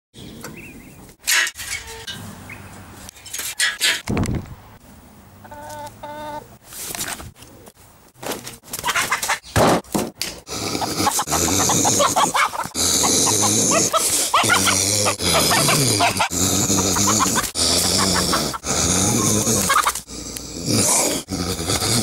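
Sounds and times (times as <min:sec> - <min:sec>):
chickens clucking: 0:05.4 - 0:06.6, 0:08.8 - 0:09.6, 0:10.8 - 0:18.6, 0:19.4 - 0:20.0.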